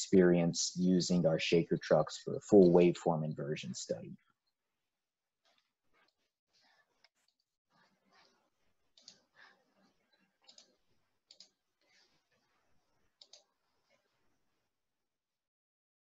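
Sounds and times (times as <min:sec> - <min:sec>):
faint computer mouse clicks: 0:11.3 - 0:11.5.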